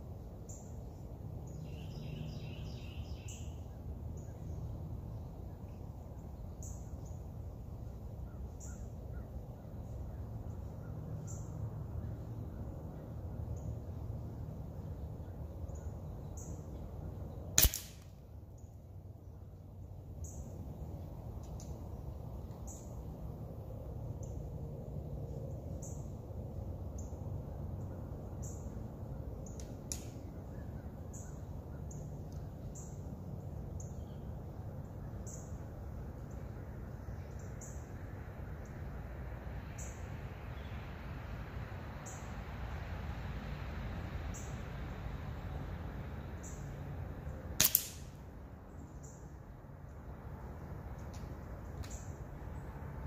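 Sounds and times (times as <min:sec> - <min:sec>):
low outdoor background: 0:00.0 - 0:53.0
air rifle shot: 0:17.6 - 0:18.1, 0:47.6 - 0:48.2.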